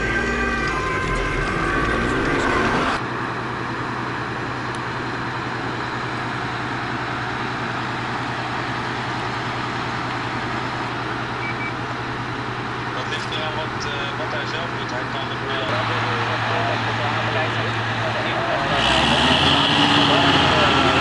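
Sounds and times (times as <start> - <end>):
vehicle engine idling: 0.0 - 19.4.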